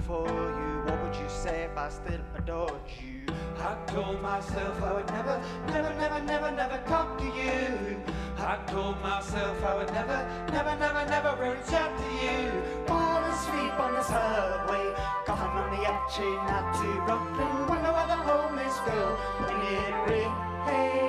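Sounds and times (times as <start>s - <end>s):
keyboards playing: 0.0s - 21.0s
low bass: 0.0s - 21.0s
regular beat: 0.0s - 21.0s.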